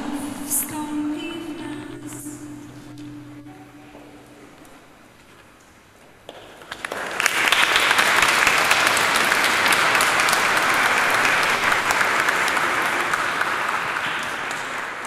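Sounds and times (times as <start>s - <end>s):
audience applause: 6.3s - 15.0s.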